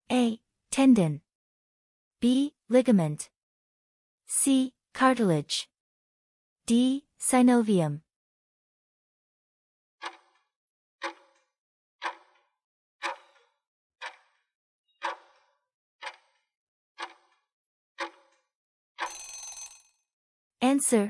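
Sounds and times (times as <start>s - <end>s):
clock ticking: 10.0s - 10.4s, 11.0s - 11.4s, 12.0s - 12.4s, 13.0s - 14.4s, 15.0s - 15.4s, 16.0s - 16.4s, 17.0s - 17.4s, 18.0s - 18.3s
ringing alarm: 19.0s - 19.8s.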